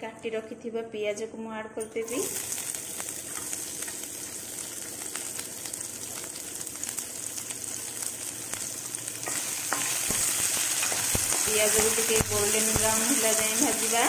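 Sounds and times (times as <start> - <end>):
onions sizzling in hot oil: 2.0 - 14.0.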